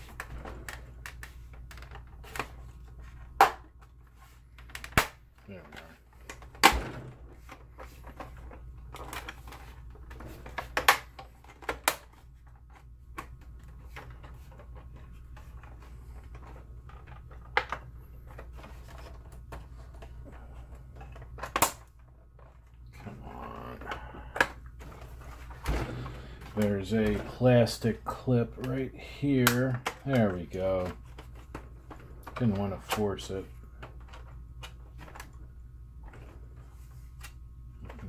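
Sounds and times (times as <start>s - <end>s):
plastic clicks and knocks: 0.0s - 20.3s
steady low hum: 0.0s - 38.0s.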